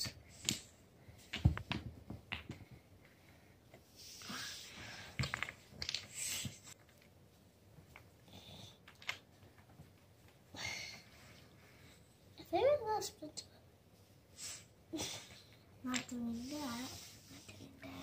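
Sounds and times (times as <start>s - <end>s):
wooden blocks clicking and tapping: 0.4s - 3.2s, 5.1s - 6.1s, 8.7s - 9.9s, 15.9s - 16.2s.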